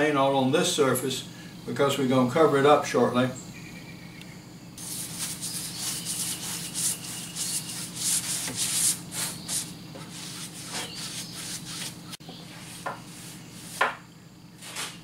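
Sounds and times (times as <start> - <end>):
paintbrush swishing on wood: 4.8 - 13.9.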